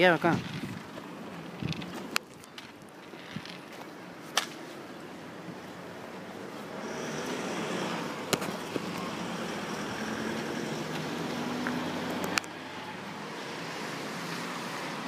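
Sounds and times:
road noise on wet pavement: 0.0s - 15.0s
vehicle engine: 5.2s - 15.0s.

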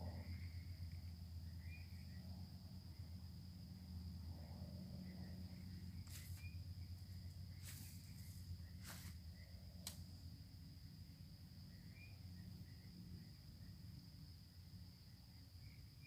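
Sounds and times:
short insect chirps: 0.0s - 3.4s, 4.4s - 16.0s
low hum: 0.0s - 15.8s
crickets trilling: 0.0s - 16.0s
knocks and rustles in grass: 6.0s - 6.6s, 7.5s - 9.2s.

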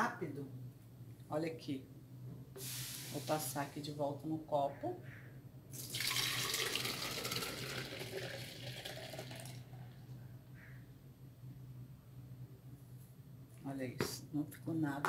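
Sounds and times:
soapy liquid pouring and splashing: 5.8s - 9.6s.

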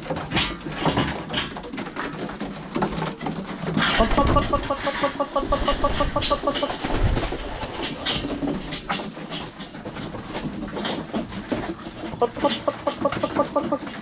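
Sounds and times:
pigeons pecking grain: 0.0s - 14.0s
pigeons cooing: 3.6s - 14.0s.

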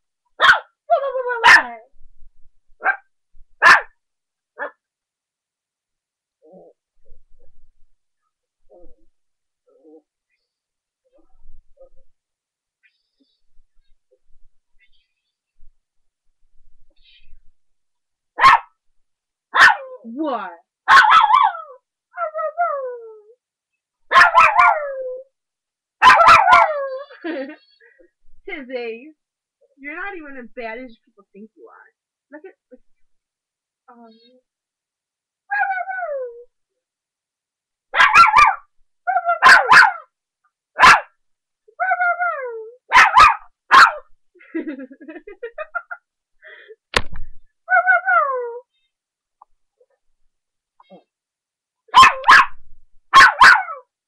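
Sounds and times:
puppy barking and yelping: 0.4s - 1.8s, 2.8s - 3.0s, 3.6s - 3.9s, 18.4s - 18.7s, 19.6s - 20.0s, 20.9s - 23.2s, 24.1s - 25.2s, 26.0s - 27.1s, 35.5s - 36.4s, 37.9s - 40.1s, 40.8s - 41.1s, 41.8s - 44.0s, 47.7s - 48.6s, 51.9s - 53.9s
puppy howl-like whines: 21.4s - 23.4s, 35.5s - 36.5s, 41.8s - 42.8s, 47.7s - 48.6s.

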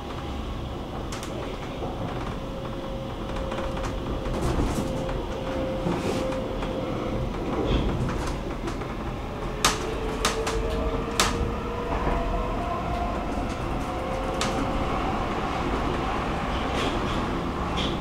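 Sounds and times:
metro train rumbling with faint whine: 0.0s - 18.0s.

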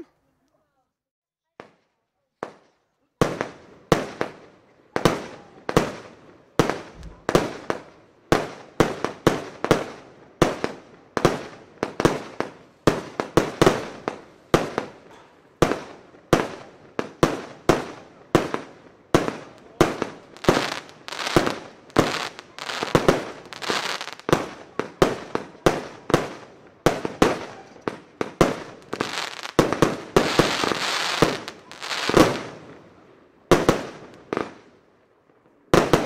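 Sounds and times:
firework bangs with echo: 5.0s - 32.8s
firework crackling: 15.6s - 32.8s.

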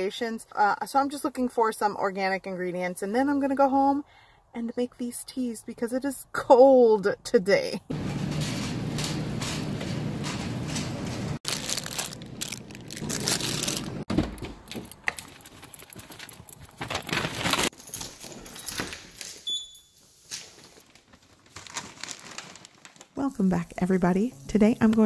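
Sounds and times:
grocery store background noise: 7.9s - 17.9s, 19.4s - 25.0s
shopping bag rustling: 7.9s - 24.3s.

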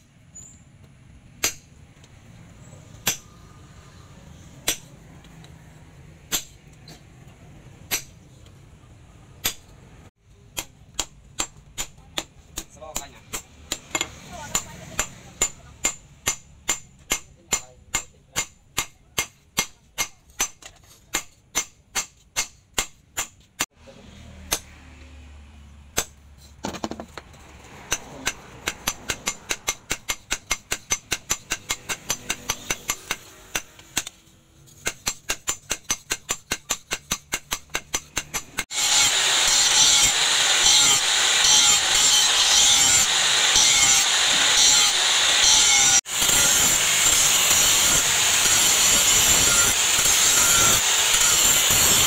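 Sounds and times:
hammer striking hot metal on anvil: 1.4s - 1.7s, 3.0s - 3.3s, 4.6s - 5.0s, 6.3s - 6.8s, 7.9s - 8.2s, 9.4s - 9.7s, 10.5s - 23.4s, 27.9s - 34.2s, 34.8s - 52.0s
angle grinder grinding metal: 38.4s - 52.0s.

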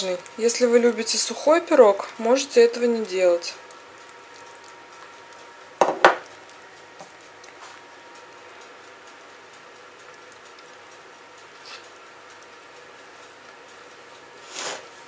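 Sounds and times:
low steady hum: 0.0s - 15.0s
glass knocking on countertop: 5.8s - 6.2s.

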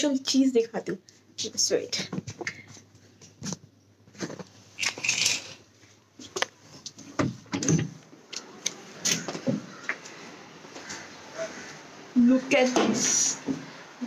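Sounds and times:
footsteps: 8.0s - 11.9s.

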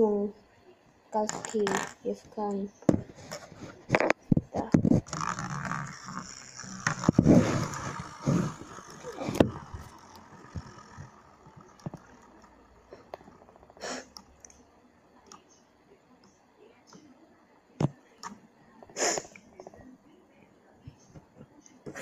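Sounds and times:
spinning tops scraping on plastic: 1.2s - 2.1s, 3.2s - 13.8s.

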